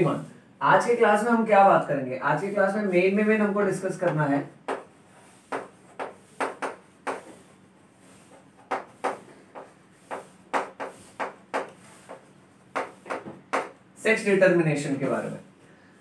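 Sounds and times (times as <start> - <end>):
chalk tapping and scratching: 4.0 - 13.8.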